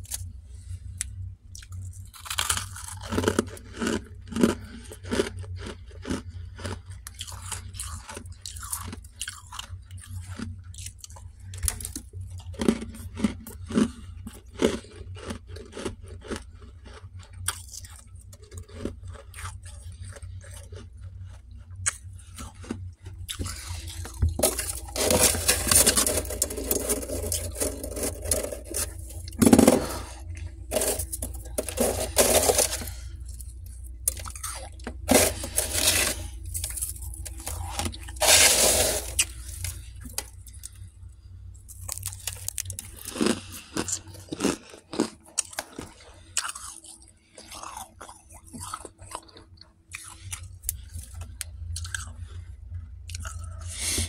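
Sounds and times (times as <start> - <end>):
frost crunching: 1.6 - 14.0, 14.6 - 40.8, 41.7 - 46.8.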